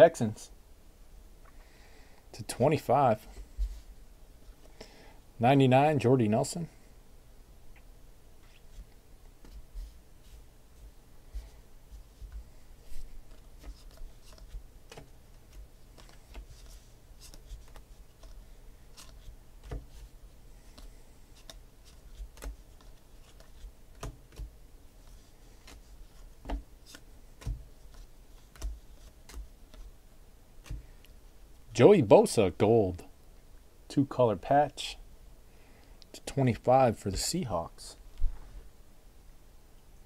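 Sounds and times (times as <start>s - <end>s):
cards clicking and snapping: 13.3s - 19.9s, 20.7s - 24.5s, 25.5s - 29.9s.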